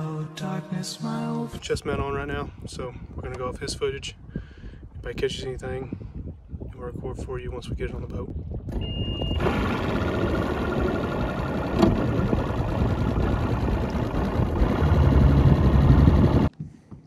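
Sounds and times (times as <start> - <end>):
outboard motor running: 8.7 - 16.5.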